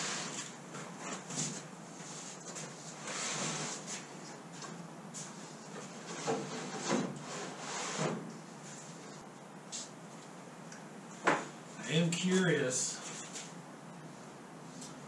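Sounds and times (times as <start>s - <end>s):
wooden sheet scraping on wood: 0.0s - 4.1s, 5.3s - 9.2s.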